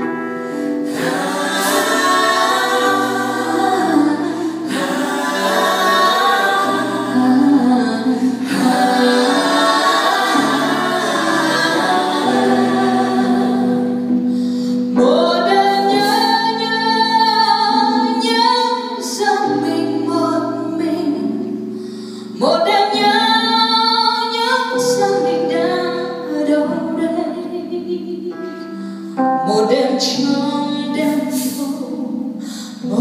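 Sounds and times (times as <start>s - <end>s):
vocal group singing a cappella: 0.4s - 21.6s, 29.5s - 33.0s.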